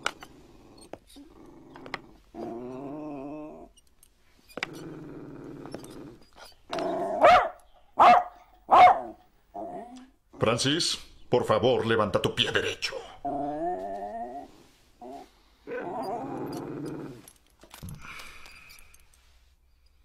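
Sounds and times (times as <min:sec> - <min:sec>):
dog growling: 0:00.0 - 0:03.8, 0:04.5 - 0:07.3, 0:09.5 - 0:10.6, 0:13.1 - 0:17.3
dog barking: 0:07.2 - 0:09.2.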